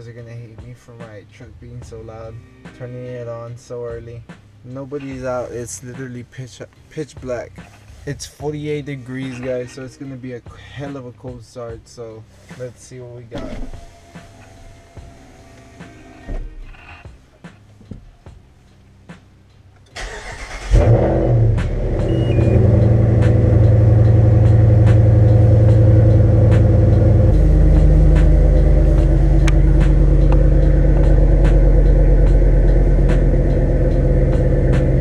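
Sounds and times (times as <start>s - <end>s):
truck engine idling loudly: 21.9s - 35.0s.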